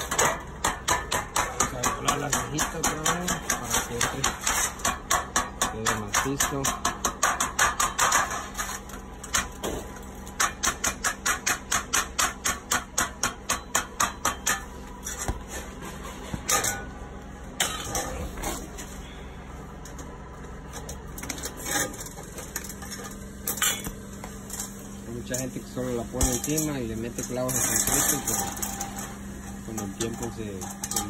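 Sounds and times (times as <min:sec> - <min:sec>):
hammer tapping sheet metal: 0:00.0 - 0:08.4, 0:10.4 - 0:16.9, 0:25.2 - 0:31.0.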